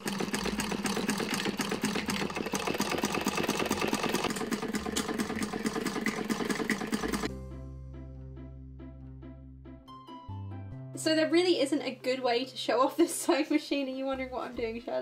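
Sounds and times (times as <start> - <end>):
hand-crank sewing machine clattering: 0.0 - 7.3.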